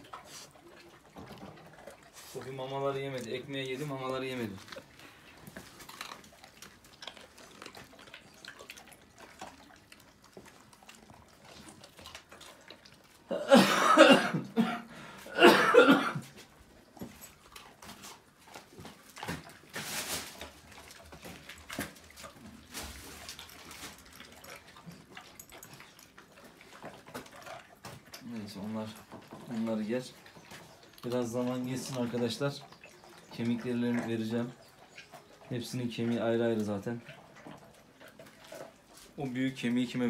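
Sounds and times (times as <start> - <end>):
dogs chewing from steel bowls: 0.0 - 40.0
dog coughing: 13.3 - 16.4.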